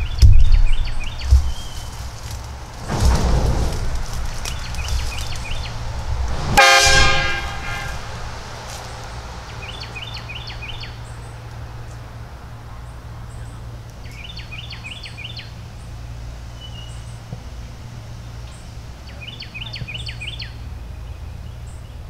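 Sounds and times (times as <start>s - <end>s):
birds chirping: 0.0s - 22.0s
train horn blast: 6.2s - 8.7s.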